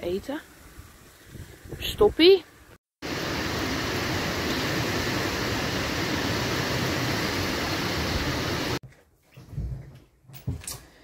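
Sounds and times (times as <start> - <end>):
wind and rain on microphone: 0.0 - 8.8.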